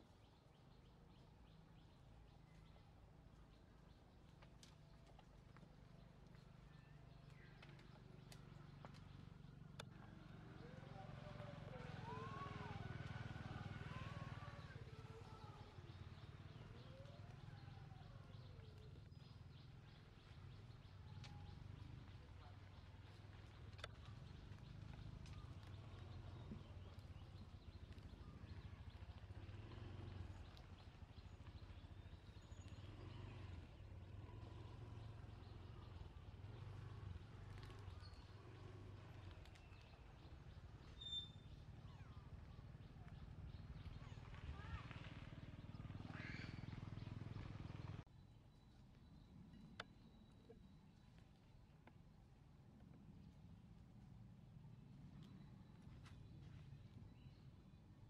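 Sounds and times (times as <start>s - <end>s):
faint low rumble: 5.9s - 58.0s
distant bird calls: 6.7s - 51.6s.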